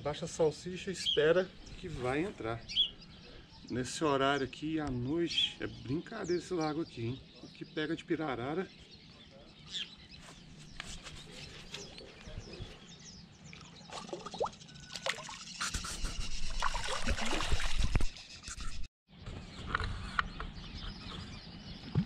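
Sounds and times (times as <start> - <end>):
water splashing and sloshing: 13.4 - 15.6, 16.4 - 18.3.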